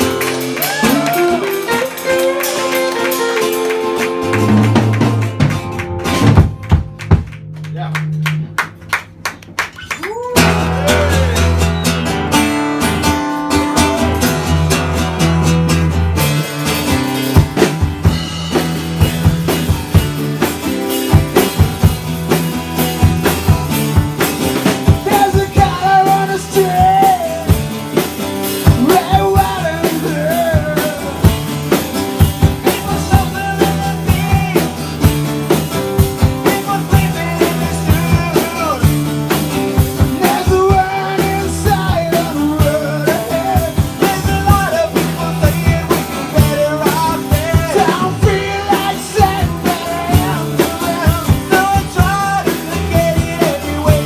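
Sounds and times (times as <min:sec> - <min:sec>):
rock band playing: 0:00.0 - 0:54.0
man singing lead vocals: 0:24.9 - 0:27.7, 0:28.6 - 0:31.5, 0:32.5 - 0:35.0, 0:36.2 - 0:39.0, 0:40.0 - 0:54.0.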